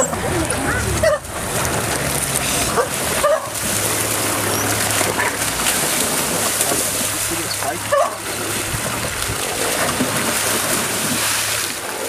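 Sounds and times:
steady background noise: 0.0 - 12.0
rising animal calls: 7.8 - 8.4
animals yelping and squealing: 7.9 - 8.2.

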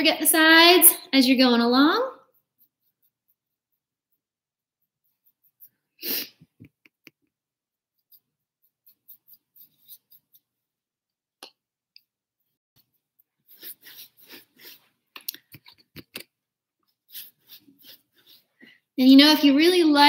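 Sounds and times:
paintbrush scratching on canvas: 1.2 - 10.8, 12.8 - 15.9, 16.8 - 19.0.

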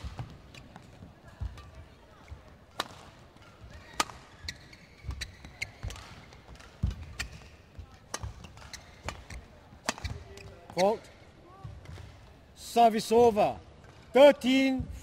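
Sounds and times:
rackets striking shuttlecock: 2.7 - 10.8.

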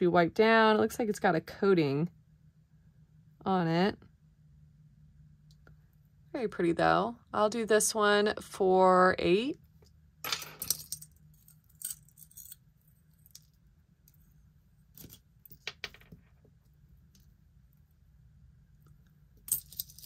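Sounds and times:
jewelry jangling: 10.5 - 13.5, 19.5 - 20.0.

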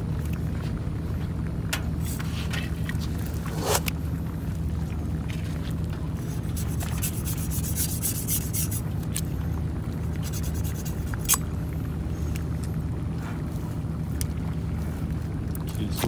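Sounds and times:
steady low hum: 0.0 - 16.0
knife sawing and scraping skin: 3.4 - 3.9, 6.3 - 8.8, 10.2 - 11.4.

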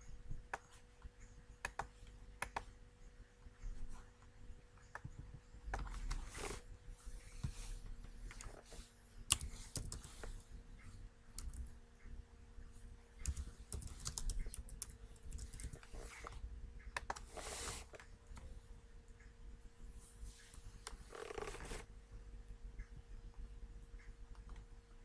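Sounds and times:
keyboard typing: 0.5 - 2.8, 9.3 - 11.8, 13.2 - 17.5.

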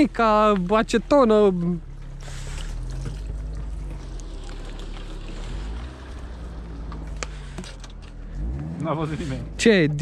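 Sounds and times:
low engine hum: 0.0 - 10.0
liquid pouring: 2.6 - 6.4.

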